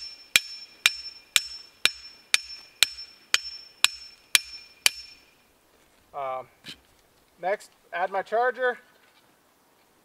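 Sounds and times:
metal-on-metal strikes with ringing: 0:00.0 - 0:05.4.

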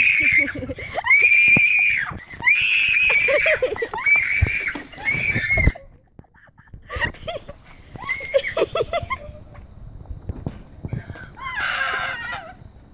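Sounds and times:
girl shrieking: 0:00.0 - 0:05.8, 0:11.4 - 0:12.6.

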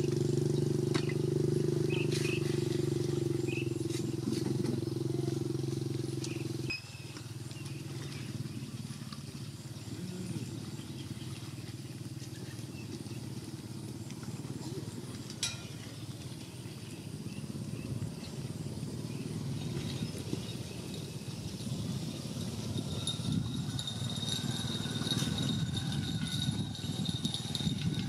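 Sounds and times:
low outdoor rumble: 0:00.0 - 0:28.0.

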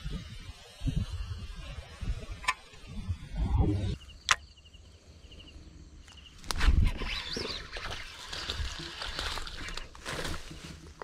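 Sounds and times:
rumbling wind: 0:00.0 - 0:11.0
sharp clicks: 0:04.2 - 0:04.5.

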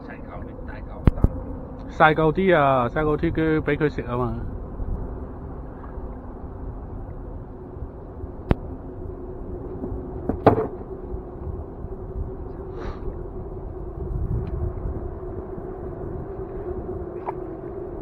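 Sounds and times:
faint hum: 0:00.0 - 0:18.0
steady low rumble: 0:00.0 - 0:18.0
knocks on a small boat: 0:10.2 - 0:10.8.

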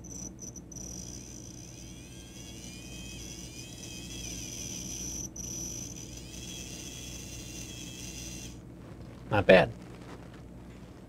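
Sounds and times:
small electric motor whine: 0:00.0 - 0:08.7.

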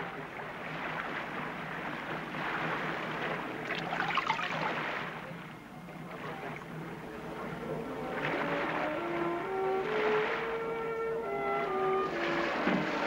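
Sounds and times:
seawater splashing against boat: 0:00.0 - 0:13.0
water pouring from bucket: 0:03.7 - 0:04.9.

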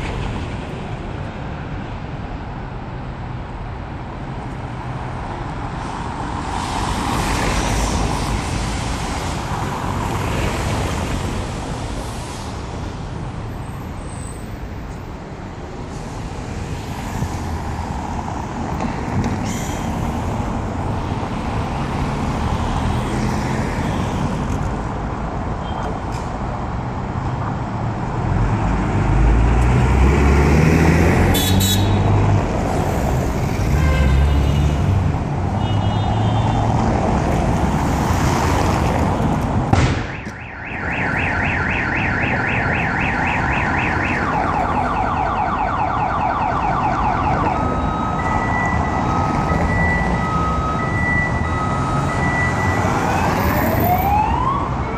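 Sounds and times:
street traffic: 0:00.0 - 0:54.9
car alarm: 0:40.0 - 0:52.8.

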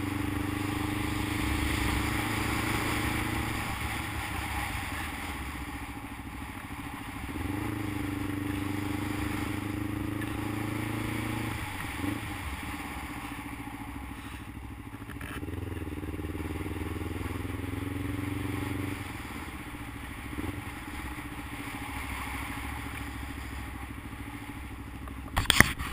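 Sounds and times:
motorcycle engine: 0:00.0 - 0:25.9.

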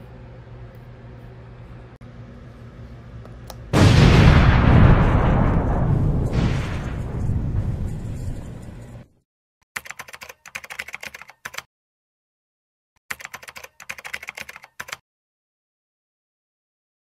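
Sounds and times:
laptop keyboard typing: 0:09.8 - 0:11.7, 0:13.1 - 0:15.0.

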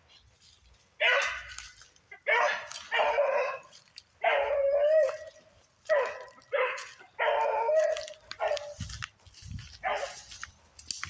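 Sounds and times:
hound baying: 0:01.0 - 0:08.9, 0:09.8 - 0:10.3.

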